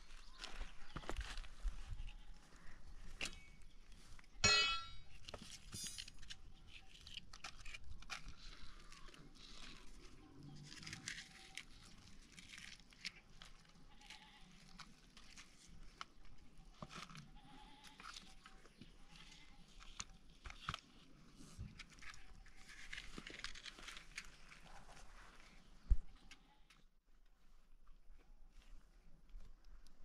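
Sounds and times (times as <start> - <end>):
firewood sticks knocking on stone: 4.4 - 5.0.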